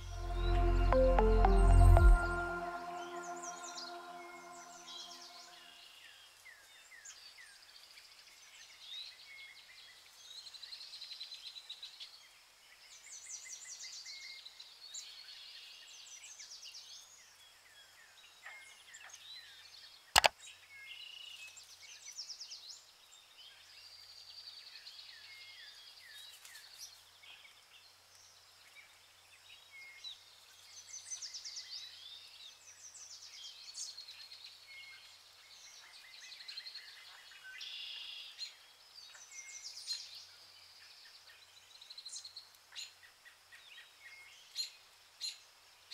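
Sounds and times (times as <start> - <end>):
birds chirping and trilling: 2.9 - 5.7.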